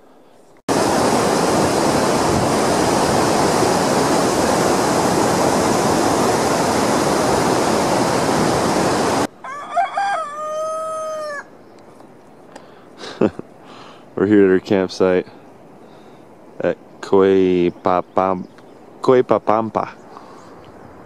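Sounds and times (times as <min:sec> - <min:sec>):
rushing stream and waterfall: 0:00.7 - 0:09.3
rooster crowing: 0:09.3 - 0:11.5.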